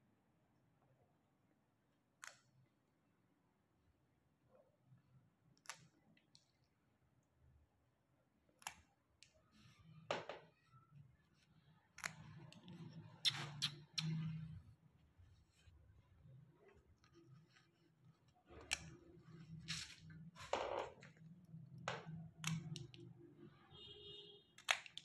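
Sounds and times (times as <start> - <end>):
faint handling sounds: 9.1 - 21.6.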